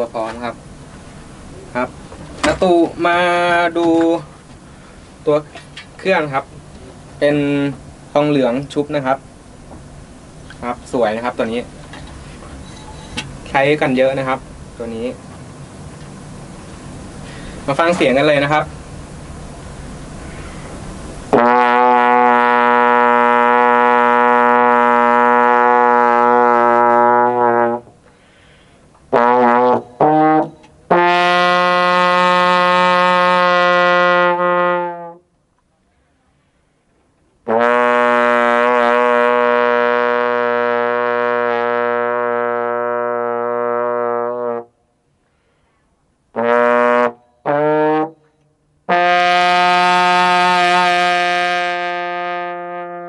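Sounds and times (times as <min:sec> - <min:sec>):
trombone playing: 0:21.3 - 0:28.0, 0:29.1 - 0:35.3, 0:37.4 - 0:44.8, 0:46.3 - 0:53.0.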